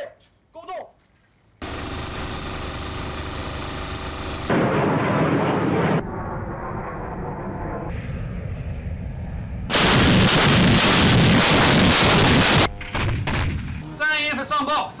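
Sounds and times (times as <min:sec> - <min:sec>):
anti-aircraft gun firing: 0:04.4 - 0:08.2, 0:09.7 - 0:13.8.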